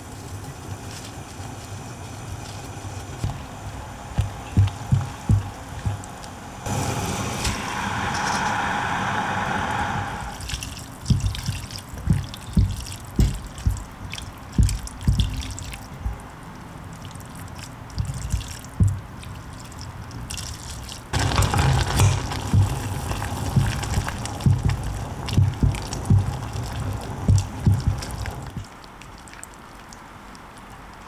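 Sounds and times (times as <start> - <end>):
broth sloshing in a saucepan: 10.3 - 30.6.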